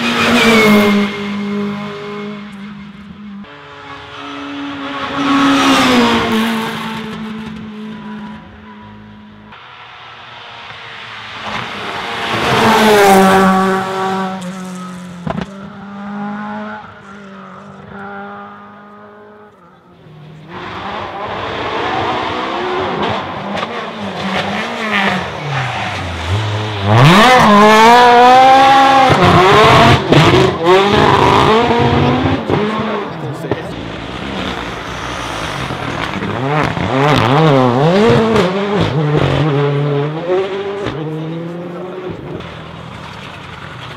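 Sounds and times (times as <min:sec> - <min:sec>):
rally car engine accelerating: 0:00.0 - 0:43.9
rally car engine passing: 0:00.0 - 0:43.9.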